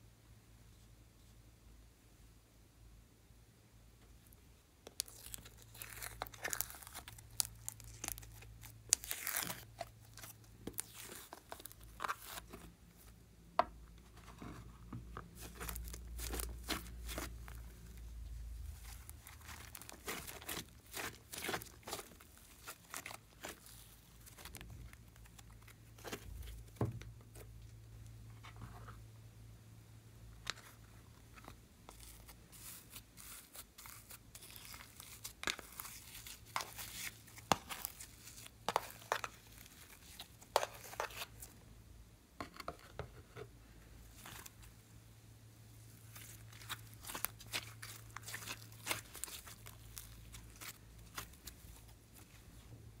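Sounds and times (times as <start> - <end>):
quiet low hum: 0.0 - 53.0
slime crackling and popping: 4.9 - 12.5, 18.6 - 25.7, 46.1 - 51.7.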